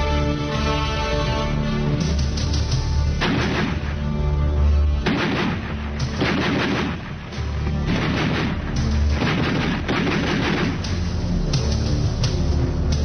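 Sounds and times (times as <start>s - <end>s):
automatic rifle bursts: 5.0s - 11.0s.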